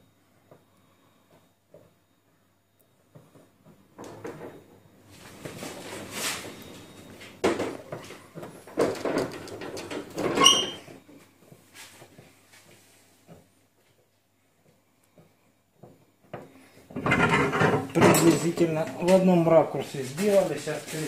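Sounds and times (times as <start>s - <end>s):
short high squeak: 10.4s - 10.9s
scraping and knocking: 16.9s - 18.6s.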